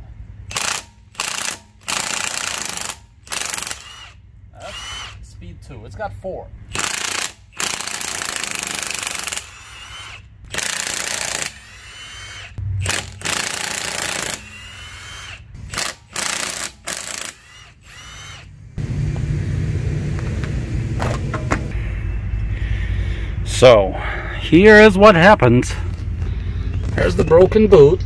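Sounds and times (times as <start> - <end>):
steady low rumble: 0.0 - 2.1, 11.4 - 16.2, 16.8 - 28.0
impact wrench hammering: 0.5 - 4.1, 6.7 - 18.3.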